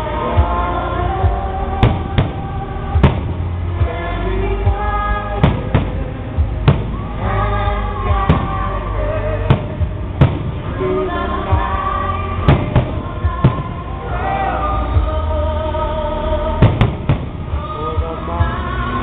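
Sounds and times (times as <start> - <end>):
loud music with singing: 0.0 - 19.0
fireworks bangs: 1.3 - 4.1, 4.7 - 15.2, 16.5 - 17.8.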